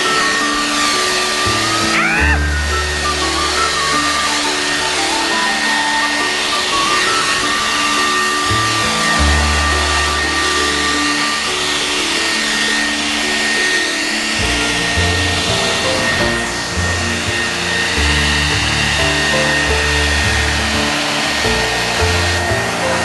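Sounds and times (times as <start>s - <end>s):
leaf blower whining: 0.0s - 23.0s
background music with bass: 1.4s - 5.5s, 8.4s - 11.4s, 14.4s - 23.0s.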